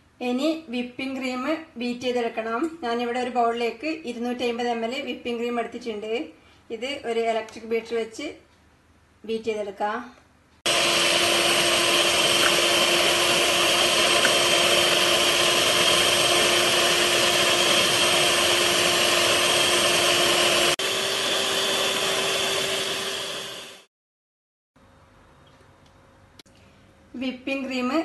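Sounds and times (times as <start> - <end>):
electric hand mixer whipping cream: 10.7 - 23.9.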